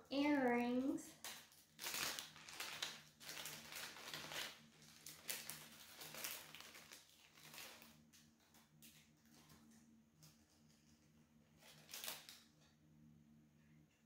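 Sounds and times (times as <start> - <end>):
packaging rustling and crinkling: 0.5 - 9.7, 11.6 - 12.5.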